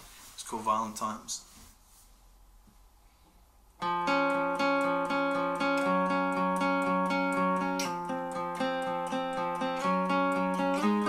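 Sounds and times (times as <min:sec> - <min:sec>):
acoustic guitar rhythmic pattern: 0:03.8 - 0:11.0.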